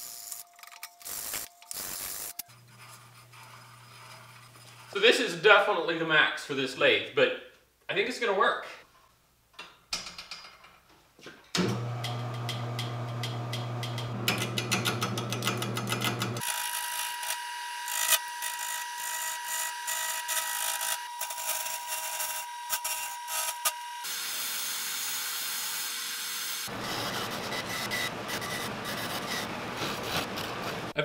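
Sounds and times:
gouge scraping spinning wood: 0:02.5 - 0:05.0, 0:13.6 - 0:16.5, 0:26.7 - 0:31.0
wood lathe motor hum: 0:11.6 - 0:24.1.

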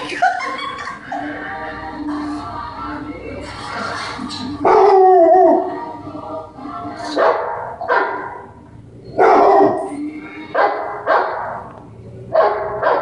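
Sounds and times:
dogs barking on television: 0:03.8 - 0:06.0, 0:06.7 - 0:13.0
pet dog barking: 0:07.2 - 0:08.5, 0:09.2 - 0:09.9, 0:10.6 - 0:11.7, 0:12.3 - 0:13.0.

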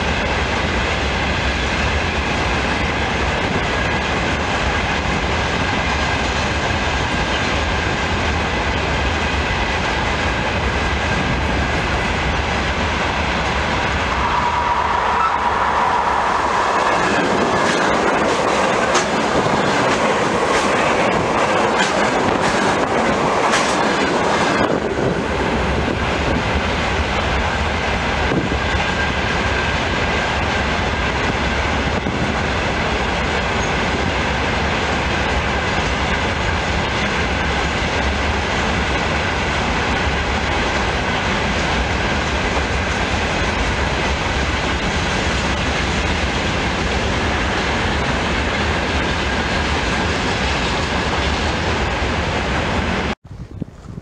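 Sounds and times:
freight train rumbling: 0:00.0 - 0:54.0
high tone from train wheels: 0:00.0 - 0:54.0
wheels clicking over rail joints: 0:17.2 - 0:25.1.

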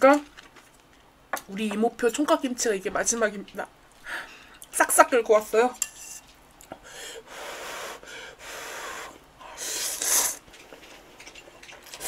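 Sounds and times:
noodles being slurped: 0:09.6 - 0:12.0.

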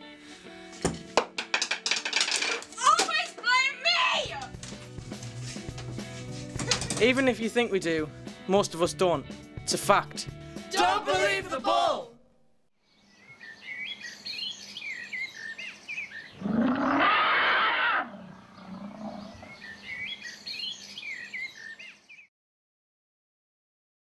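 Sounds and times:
birds chirping: 0:12.8 - 0:17.0, 0:18.0 - 0:22.3
elephant trumpeting: 0:16.4 - 0:19.6.

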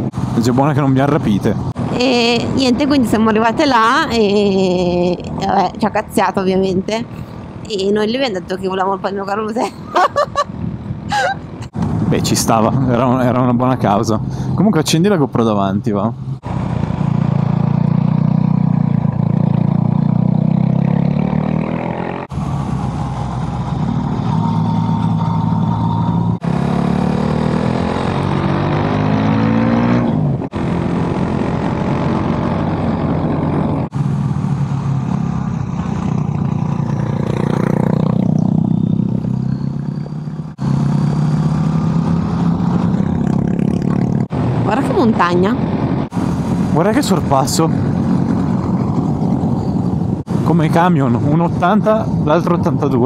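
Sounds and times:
motorcycle engines revving: 0:15.2 - 0:53.0
wind rushing: 0:41.4 - 0:52.7.

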